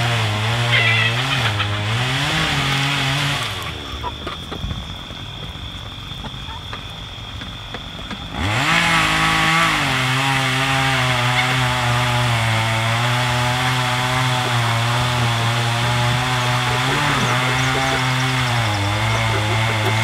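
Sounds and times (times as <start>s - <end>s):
small engine starting and running: 0.0s - 4.5s, 8.0s - 20.0s.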